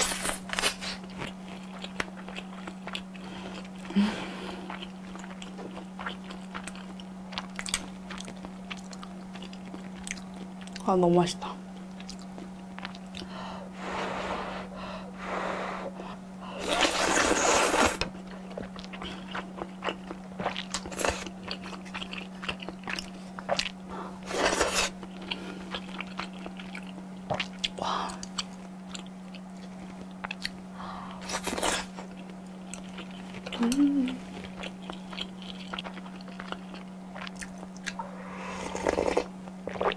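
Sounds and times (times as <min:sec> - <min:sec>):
wet chewing with mouth clicks: 0:00.0 - 0:11.0, 0:11.7 - 0:13.4, 0:16.6 - 0:39.9
steady low hum: 0:00.0 - 0:39.9
noodle slurping: 0:16.6 - 0:18.0, 0:38.0 - 0:39.9.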